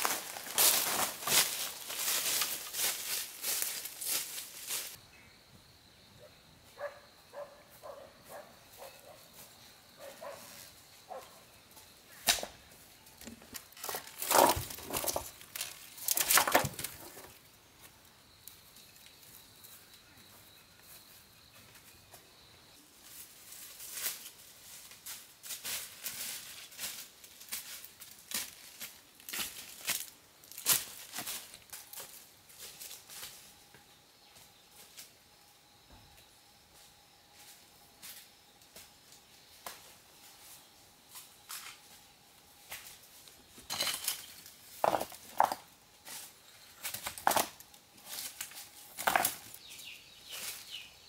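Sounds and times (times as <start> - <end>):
rustling scraping and knocking: 13.2 - 17.4, 43.6 - 46.2.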